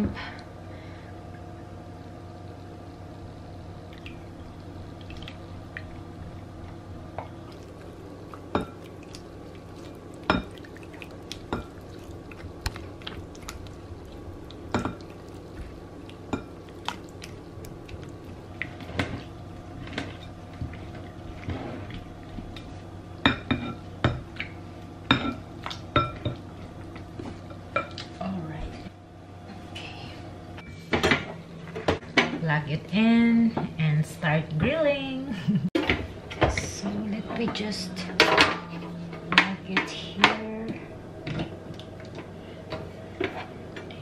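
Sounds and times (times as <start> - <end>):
faint hum: 0.0 - 44.0
wet squishing and sloshing: 3.9 - 22.8.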